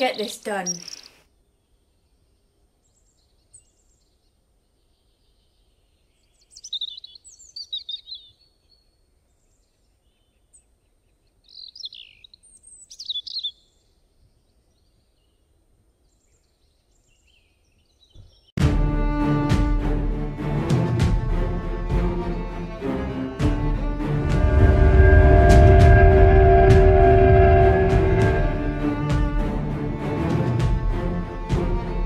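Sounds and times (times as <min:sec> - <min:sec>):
songbird chirping: 0:00.0 - 0:18.6.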